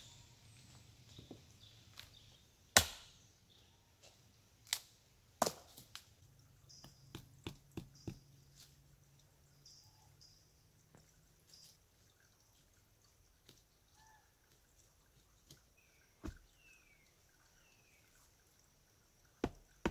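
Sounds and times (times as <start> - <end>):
wooden post knocks: 16.2 - 16.5, 19.4 - 19.9.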